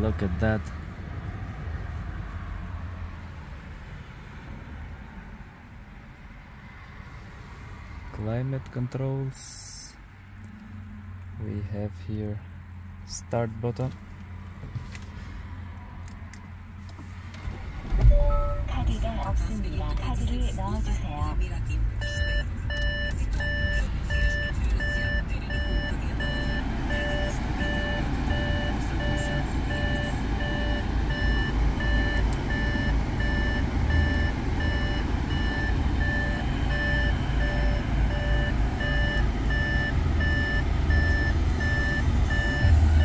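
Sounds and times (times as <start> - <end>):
diesel car engine idling: 15.8 - 43.0
car warning chime beeping: 18.0 - 43.0.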